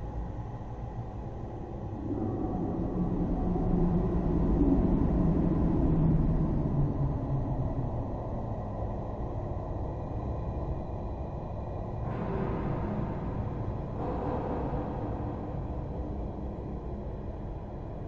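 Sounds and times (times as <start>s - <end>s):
deep low rumble: 1.1s - 18.0s.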